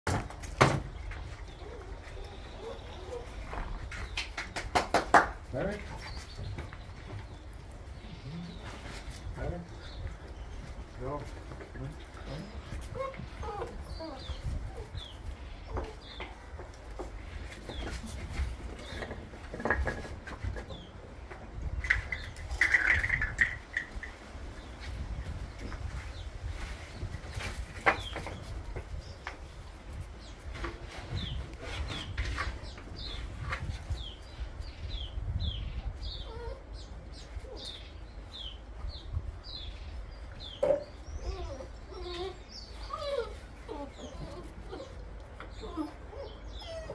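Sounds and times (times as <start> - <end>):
puppies squeaking and squealing: 1.4 - 3.7, 12.2 - 16.1, 36.0 - 37.9, 40.7 - 46.9.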